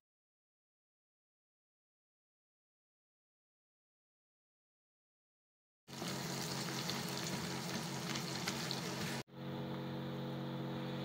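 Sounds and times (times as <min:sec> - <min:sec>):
onions sizzling in hot oil: 0:05.9 - 0:09.2.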